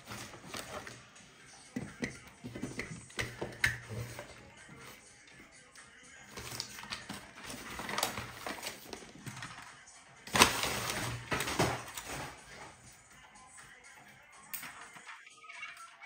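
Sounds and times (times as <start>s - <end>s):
paper packaging crinkling: 6.3s - 12.8s.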